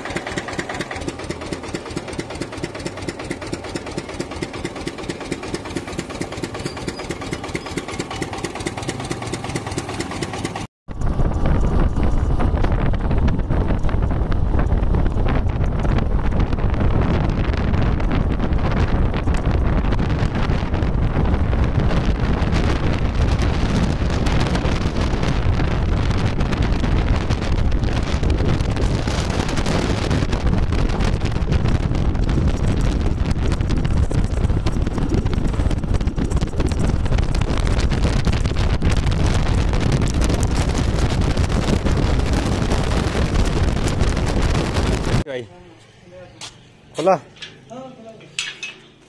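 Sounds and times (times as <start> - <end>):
wind buffeting microphone: 10.5 - 45.3.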